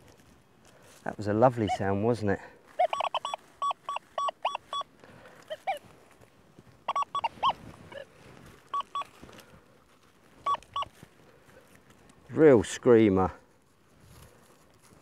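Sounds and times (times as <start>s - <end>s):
metal detector high beeps: 2.8s - 4.9s, 5.5s - 5.8s, 6.9s - 8.1s, 8.7s - 9.1s, 10.4s - 10.9s.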